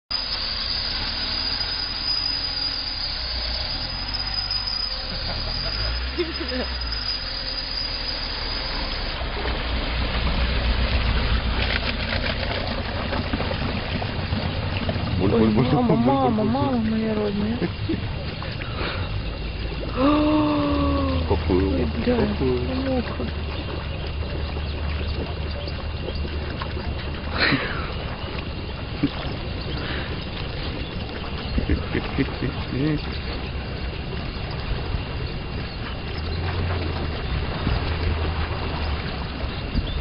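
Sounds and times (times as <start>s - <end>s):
car engine low rumble: 0.1s - 40.0s
vehicle wading through river: 0.1s - 40.0s
water sloshing and splashing: 1.6s - 40.0s
wind on microphone: 27.8s - 40.0s.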